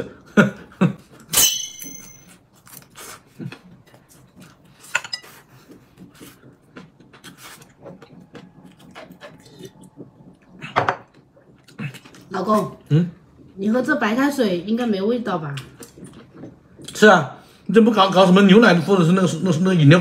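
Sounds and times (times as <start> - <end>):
tableware clinking: 1.3 - 2.4.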